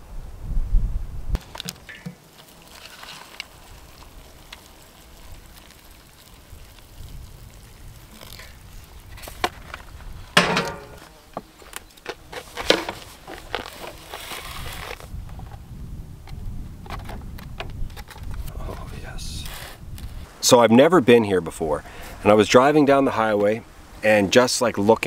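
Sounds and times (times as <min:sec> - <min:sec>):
foil lid peeled back: 0:01.4 - 0:15.6, 0:19.4 - 0:20.2
hot water pouring into cup: 0:01.6 - 0:09.1
kettle and dishes clinking: 0:10.4 - 0:11.0.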